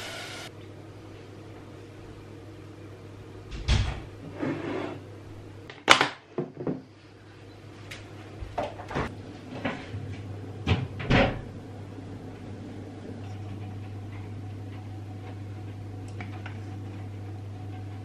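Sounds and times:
steady low hum: 6.8 - 18.0.

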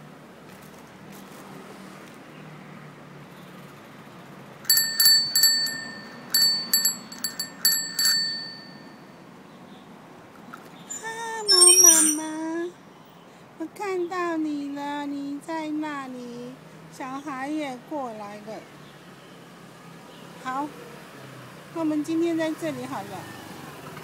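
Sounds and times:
faint background noise: 0.0 - 24.0
bicycle bell dings: 4.7 - 9.1, 11.5 - 12.4.

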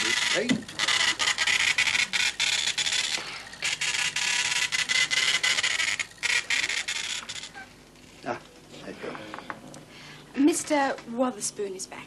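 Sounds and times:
teleprinter mechanical chatter: 0.0 - 9.5.

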